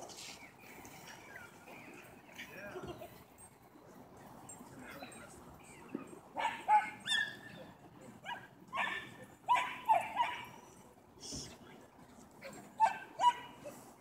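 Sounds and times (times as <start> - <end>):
dogs play-barking and yipping: 6.1 - 10.8, 12.2 - 14.0.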